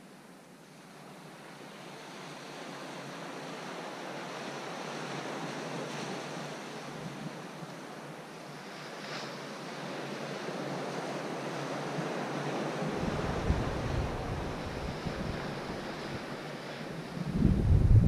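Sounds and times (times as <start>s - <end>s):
surf washing on rocky shore: 2.6s - 18.0s
wind rumbling on microphone: 12.6s - 18.0s.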